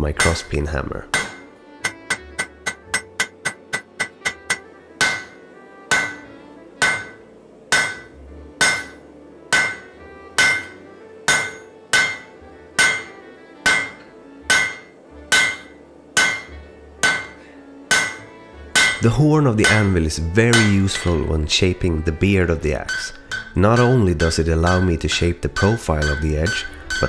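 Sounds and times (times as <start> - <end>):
hammer striking hot steel on anvil: 0.0 - 21.6, 22.7 - 27.0.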